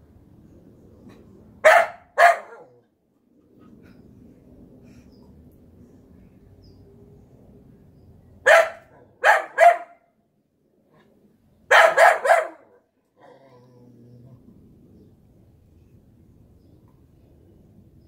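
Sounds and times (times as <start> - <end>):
dog barking: 1.6 - 2.8, 8.4 - 10.1, 11.7 - 12.9.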